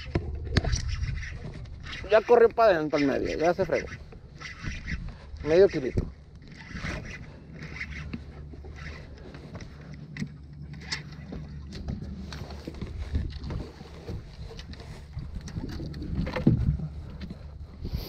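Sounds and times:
wind on microphone: 0.0s - 9.8s, 10.8s - 18.0s
fishing reel clicks and scrapes: 0.0s - 11.3s
boat motor humming: 0.0s - 18.0s.

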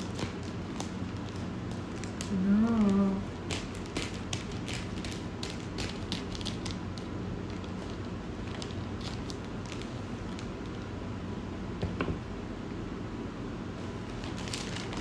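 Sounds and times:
scissors snipping plastic: 0.0s - 6.8s
plastic crackling: 0.0s - 10.9s, 14.1s - 15.0s
steady low hum: 0.0s - 15.0s.

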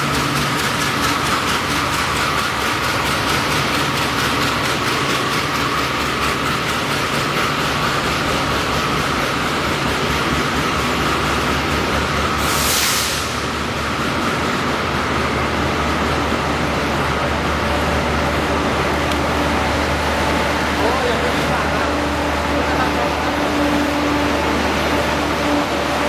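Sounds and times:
train coaches rolling past: 0.0s - 26.0s
brief hiss: 12.4s - 13.4s.

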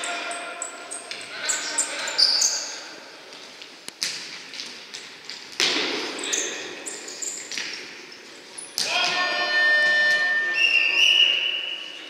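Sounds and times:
shoes squeaking: 0.9s - 2.8s, 6.1s - 11.8s
ball thudding on hall floor: 5.6s - 6.2s.

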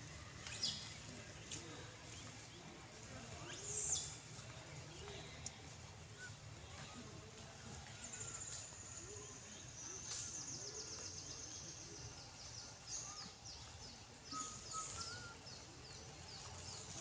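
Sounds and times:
faint whistles: 6.1s - 7.0s, 14.2s - 15.7s.

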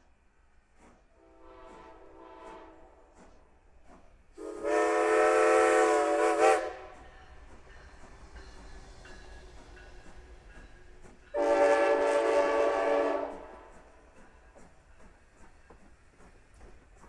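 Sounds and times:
steam locomotive whistle: 1.2s - 3.2s, 4.4s - 7.1s, 11.3s - 13.8s.

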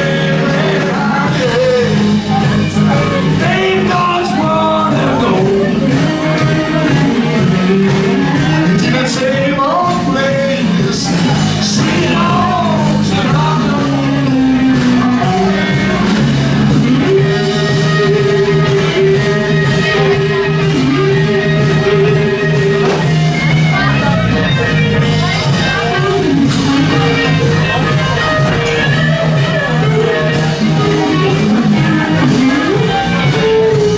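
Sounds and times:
man singing: 0.0s - 23.1s
rock band playing: 0.0s - 33.9s.

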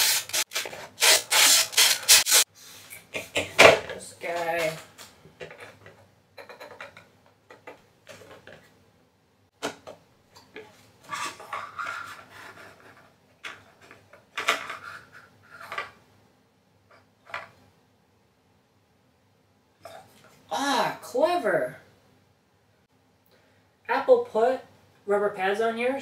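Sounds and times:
scraping rubs: 10.6s - 14.0s.

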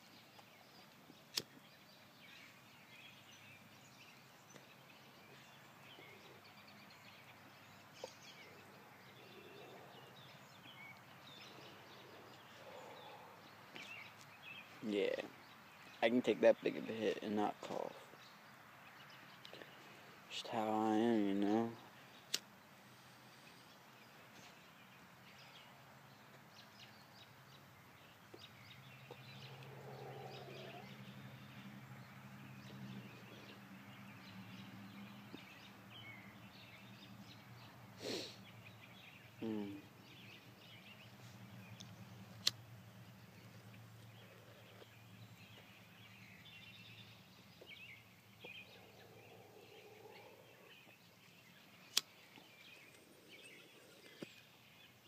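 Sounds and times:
distant birds chirping: 0.0s - 55.0s
sharp clicks: 41.8s - 42.6s.

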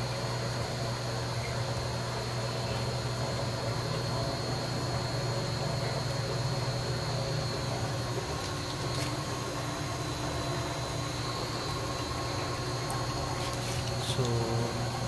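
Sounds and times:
water splashing from drain pipe: 7.6s - 15.0s.

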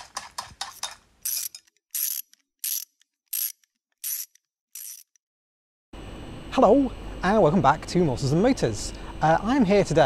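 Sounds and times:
mechanical ratcheting clicks: 1.2s - 5.2s.

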